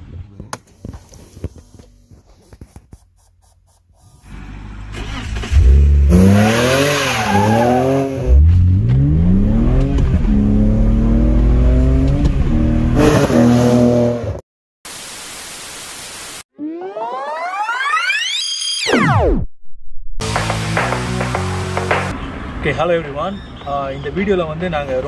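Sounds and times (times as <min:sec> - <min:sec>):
car engine accelerating: 0:04.3 - 0:14.2
static hiss: 0:14.9 - 0:16.4.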